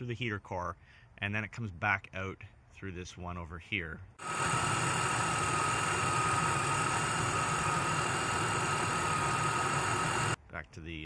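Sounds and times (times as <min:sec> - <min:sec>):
supercharger whine: 0:04.2 - 0:10.4.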